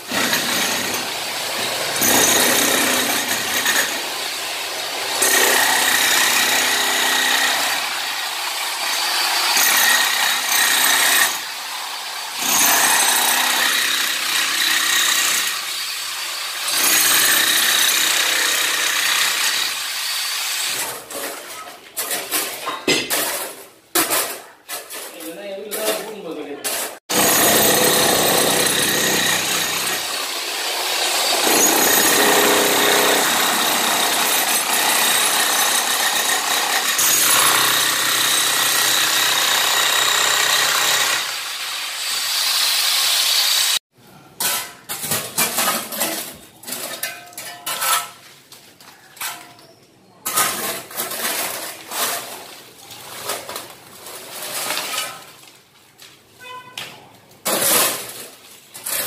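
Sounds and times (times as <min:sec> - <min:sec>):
demolition hammer breaking concrete: 0:00.0 - 0:11.5, 0:12.4 - 0:15.7, 0:16.6 - 0:19.8, 0:26.8 - 0:41.3
spade scraping and clinking: 0:44.4 - 0:48.4.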